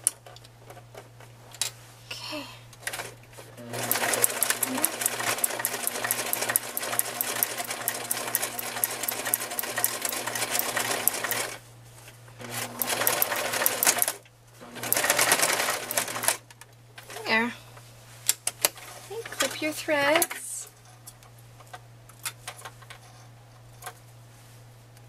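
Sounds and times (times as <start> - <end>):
sewing machine stitching: 3.6 - 11.6, 12.4 - 16.4.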